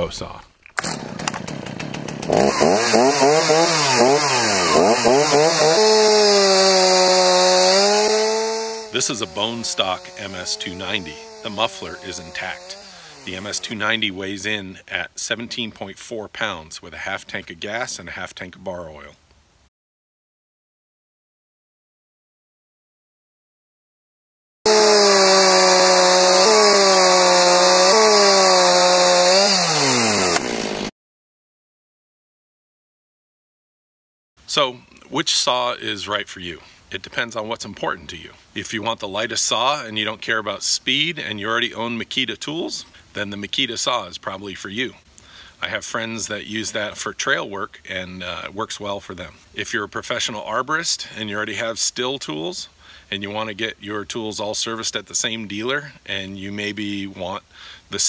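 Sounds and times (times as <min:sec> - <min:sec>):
chainsaw revving: 0:00.8 - 0:14.1, 0:24.7 - 0:30.9.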